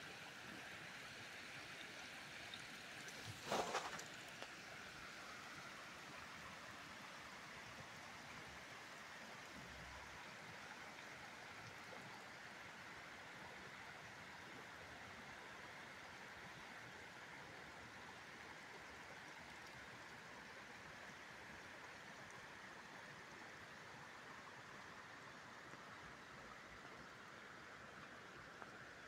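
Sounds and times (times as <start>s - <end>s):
shallow water running over stone: 2.6s - 5.0s.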